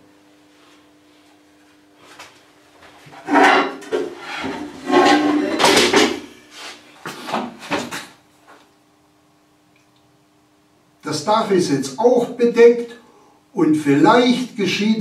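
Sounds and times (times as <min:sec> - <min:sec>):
wood scraping and knocking: 0:03.2 - 0:06.2.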